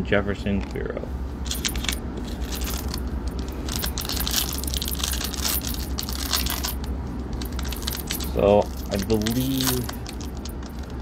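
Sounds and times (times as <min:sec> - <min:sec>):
foil wrapper crinkling: 0:07.4 - 0:10.9.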